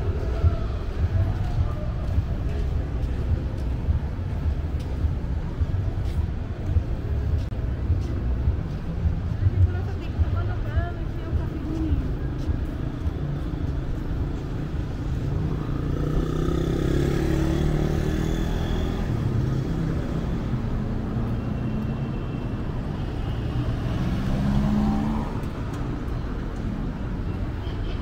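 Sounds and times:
street traffic rumble: 0.0s - 28.0s.

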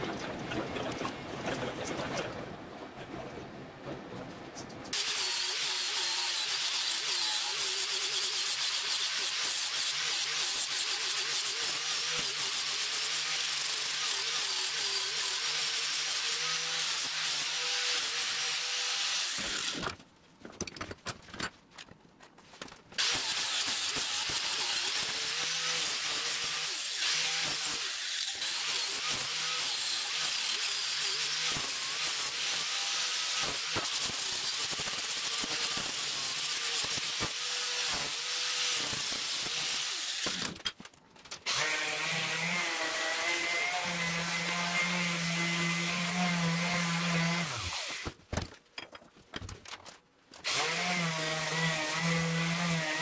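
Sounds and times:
angle grinder grinding metal: 4.9s - 19.9s, 23.0s - 40.6s, 41.5s - 48.1s, 50.4s - 53.0s.

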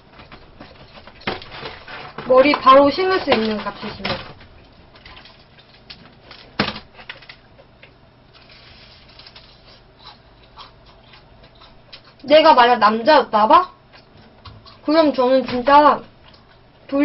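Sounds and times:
fried food being chewed: 7.1s - 12.3s, 13.6s - 14.9s, 16.2s - 16.9s.

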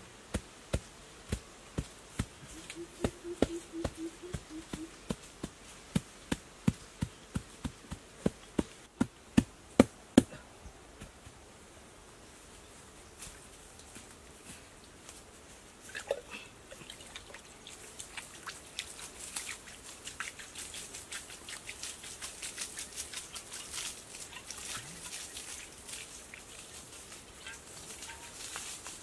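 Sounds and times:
water splashing onto grass: 15.8s - 29.0s.

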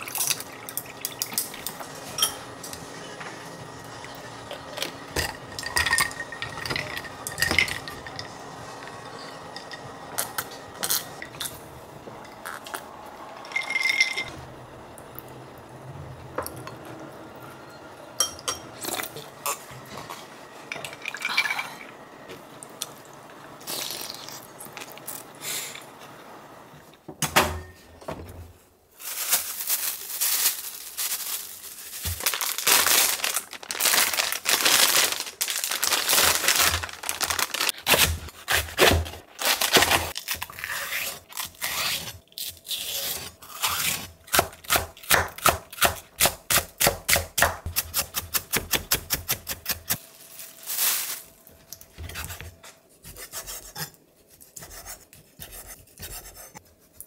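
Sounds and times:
knife scraping on board: 52.0s - 56.6s.

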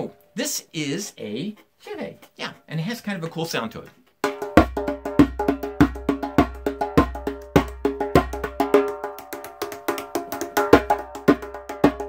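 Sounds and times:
hand drum strokes: 4.3s - 12.0s.

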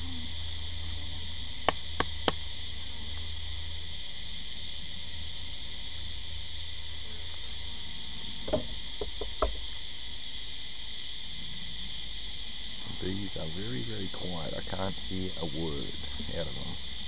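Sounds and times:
high insect chorus: 0.0s - 17.0s
wooden frames knocking: 8.5s - 9.6s.

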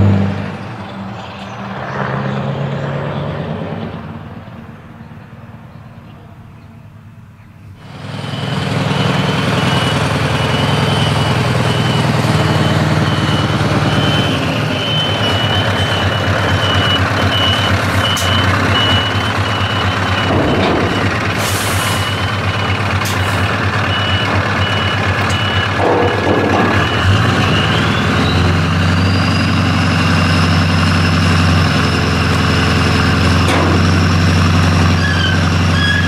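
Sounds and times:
diesel truck engine running loudly: 0.0s - 36.0s
reversing alarm beeping: 7.8s - 36.0s.

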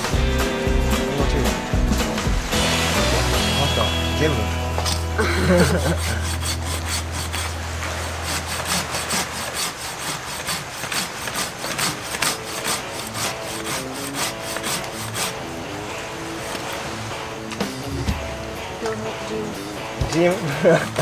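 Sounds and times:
pull saw rasping through log: 4.8s - 15.6s, 20.4s - 21.0s.

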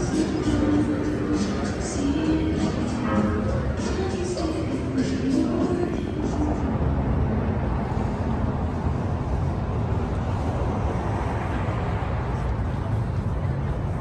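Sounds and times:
background music: 0.0s - 7.0s
street traffic rumble: 0.0s - 14.0s.

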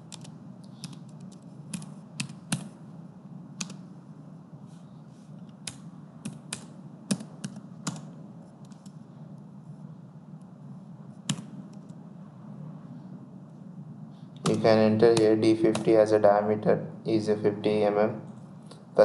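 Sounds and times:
steady low hum: 0.0s - 19.0s
computer keyboard key clicks: 3.6s - 3.8s.

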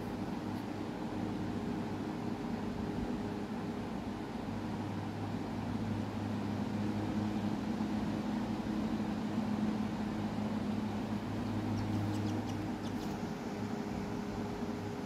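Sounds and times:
low mechanical hum: 0.0s - 15.0s
chick peeping: 11.7s - 13.2s.

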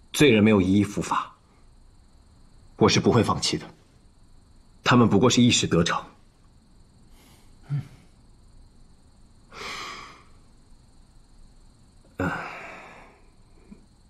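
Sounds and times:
person sighing: 7.6s - 8.1s, 9.5s - 10.3s, 12.1s - 13.3s.

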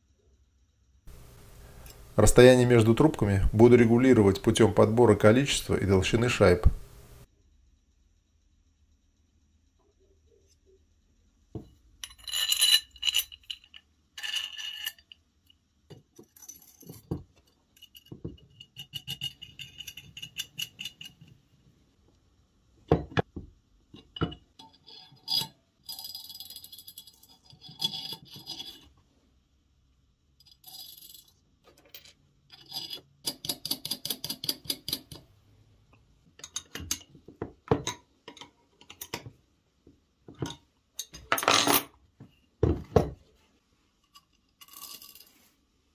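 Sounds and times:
metal parts clinking and rattling: 12.0s - 15.2s, 16.2s - 21.4s, 24.0s - 28.9s, 30.4s - 35.2s, 44.1s - 45.4s.

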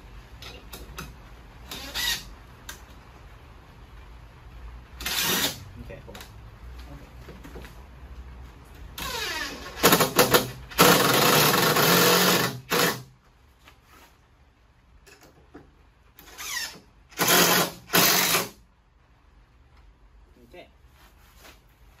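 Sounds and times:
cordless drill driving screws: 5.0s - 5.6s, 9.0s - 13.0s, 16.2s - 18.6s.

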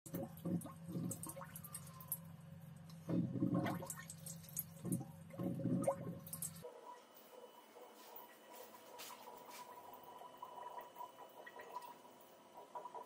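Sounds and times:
watery gurgling: 0.1s - 2.2s, 3.0s - 6.6s, 9.7s - 13.0s
steady low hum: 0.1s - 13.0s.

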